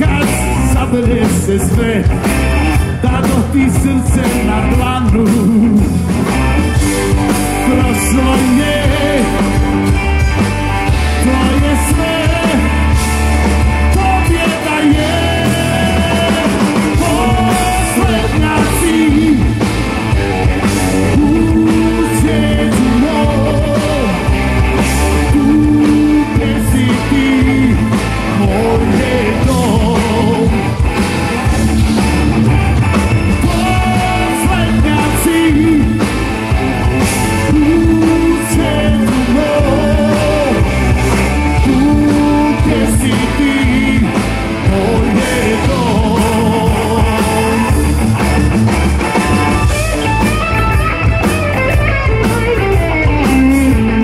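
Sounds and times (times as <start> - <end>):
man singing: 0.0 - 6.1, 7.0 - 10.0, 10.8 - 19.7, 20.8 - 30.8, 33.3 - 48.0
live rock band playing: 0.0 - 54.0.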